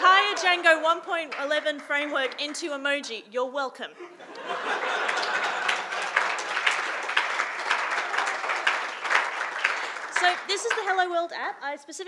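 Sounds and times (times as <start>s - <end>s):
audience applauding: 4.4s - 11.1s.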